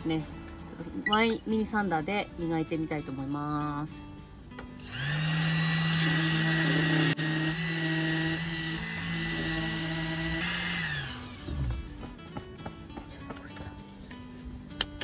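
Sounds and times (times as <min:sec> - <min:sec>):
electric sander running: 0:04.8 - 0:11.8.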